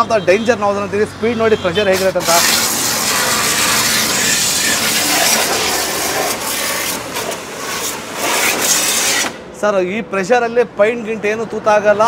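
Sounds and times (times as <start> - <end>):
pressure washer spraying water: 2.0 - 9.4.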